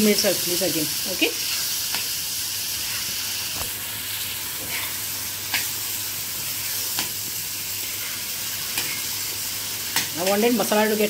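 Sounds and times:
masala sizzling on griddle: 0.0s - 11.0s
metal spatula scraping: 7.8s - 9.1s.

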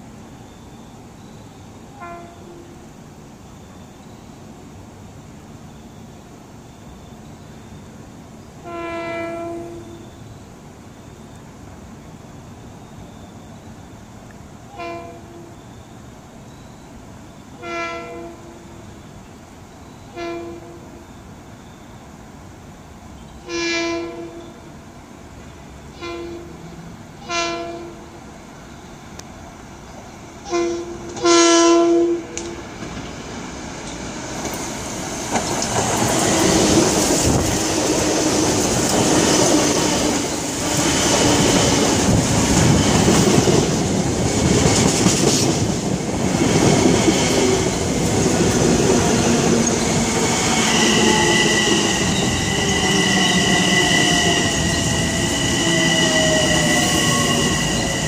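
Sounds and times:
train passing with wheel clatter: 0.0s - 58.0s
train horn blasts: 1.9s - 2.8s, 8.6s - 10.2s, 14.7s - 15.7s, 17.5s - 18.9s, 19.8s - 21.1s, 23.4s - 24.6s, 25.9s - 28.2s, 30.4s - 32.6s, 50.6s - 58.0s
steady high squeal: 32.2s - 58.0s.

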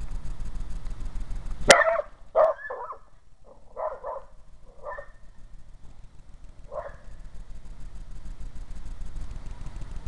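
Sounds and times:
dog barking: 1.7s - 3.1s, 3.7s - 5.2s, 6.7s - 7.1s.

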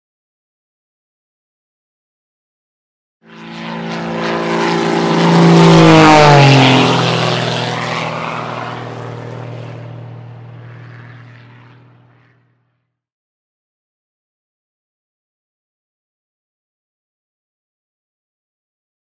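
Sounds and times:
propeller airplane flying past: 3.2s - 13.0s.

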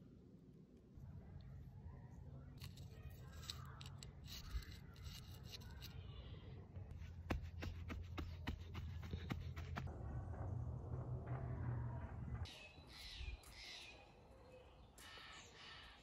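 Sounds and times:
hand patting garden soil: 6.9s - 9.9s.

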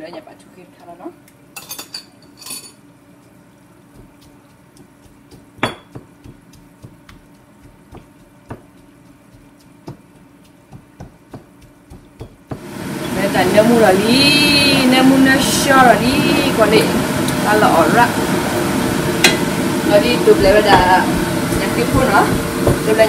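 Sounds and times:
metal utensils clinking on dishes: 1.6s - 2.8s.

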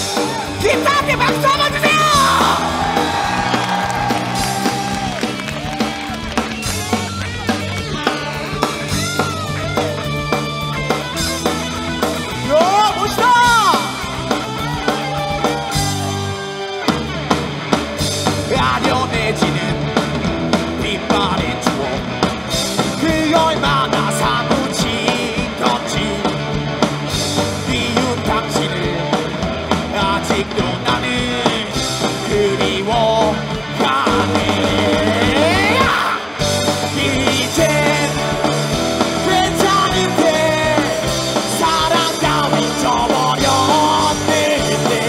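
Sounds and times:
bass guitar: 0.0s - 45.0s
drum kit: 0.0s - 45.0s
electric guitars: 0.0s - 45.0s
person singing: 18.4s - 26.7s, 27.3s - 45.0s.

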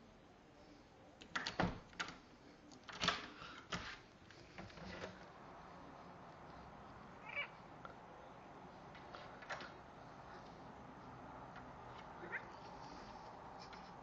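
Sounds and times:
cat meowing: 7.2s - 7.6s, 12.2s - 12.6s.

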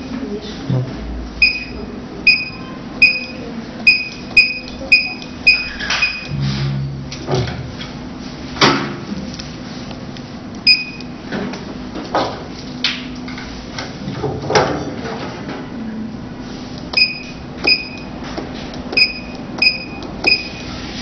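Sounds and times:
short high-pitched key beeps: 1.4s - 6.4s, 10.7s - 11.1s, 17.0s - 18.1s, 19.0s - 20.6s.

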